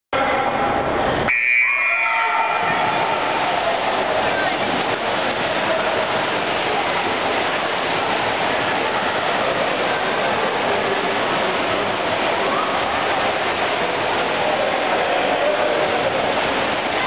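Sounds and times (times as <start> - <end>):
swimmers splashing: 1.3 - 17.0
crowd cheering: 1.4 - 7.1, 8.0 - 17.0.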